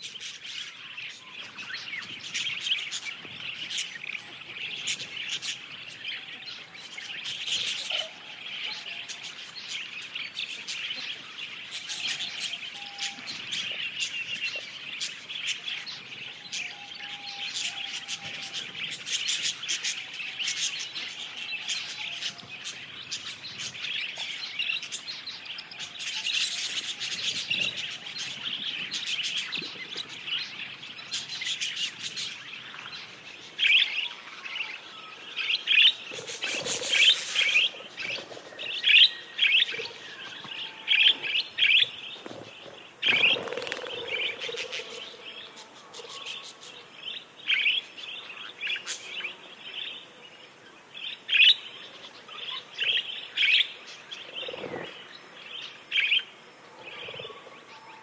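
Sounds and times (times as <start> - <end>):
parakeets chirping: 35.4 - 49.3.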